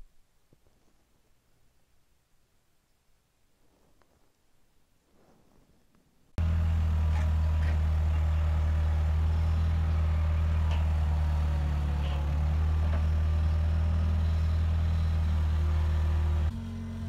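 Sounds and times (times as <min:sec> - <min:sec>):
hydraulic auger boring into ground: 0:06.4 - 0:17.0
loader engine running under load: 0:06.4 - 0:17.0.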